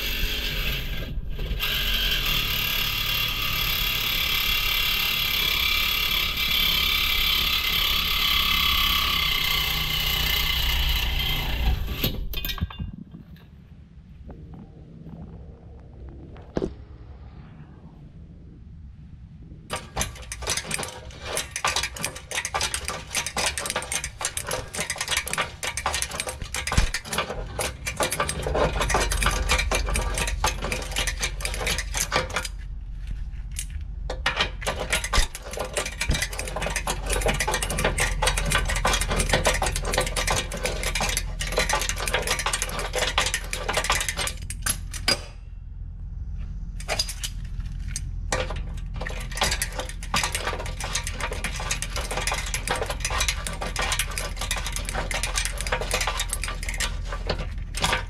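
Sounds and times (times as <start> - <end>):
reciprocating saw cutting metal: 0.0 - 12.3, 19.7 - 32.5, 48.3 - 58.0.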